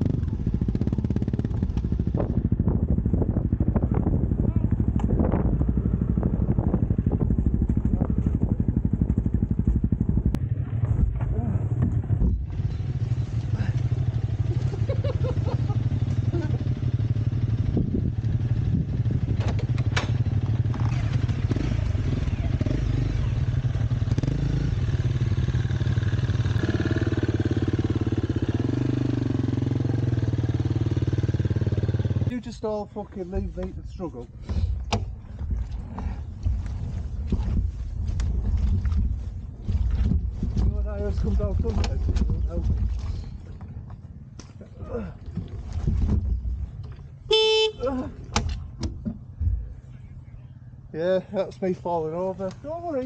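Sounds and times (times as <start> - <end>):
motorbike engine running: 0.0 - 32.6, 44.8 - 49.8.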